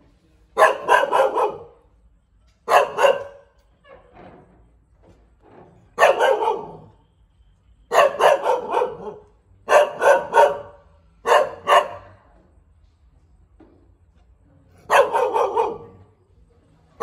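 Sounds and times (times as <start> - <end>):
dog barking: 0.6 - 1.9, 2.6 - 3.6, 6.0 - 7.0, 7.9 - 12.3, 14.8 - 16.1.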